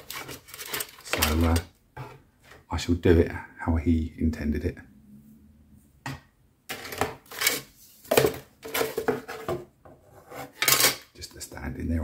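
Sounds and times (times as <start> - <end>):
plastic parts clattering: 0.0 - 1.7, 6.7 - 9.6, 10.5 - 11.1.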